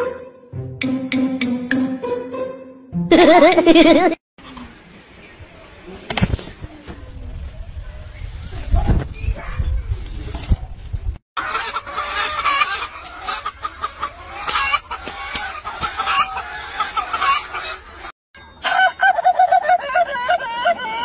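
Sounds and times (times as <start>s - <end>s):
hens clucking: 11.4s - 18.1s.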